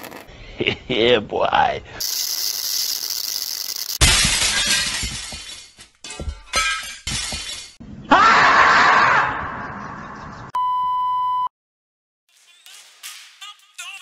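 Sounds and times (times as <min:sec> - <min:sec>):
glass shattering crash: 0:03.9 - 0:07.8.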